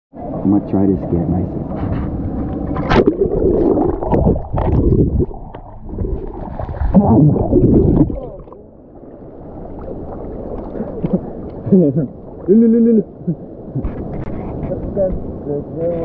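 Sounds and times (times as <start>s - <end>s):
muffled water sloshing and gurgling: 0.2s - 16.0s
sharp splashes or knocks: 2.6s - 8.5s.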